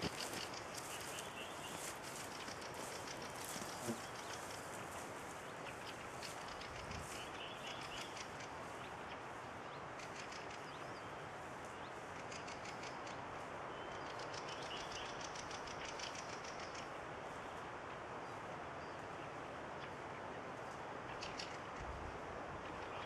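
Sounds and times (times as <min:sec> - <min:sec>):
birds chirping and trilling: 0:00.0 - 0:17.6.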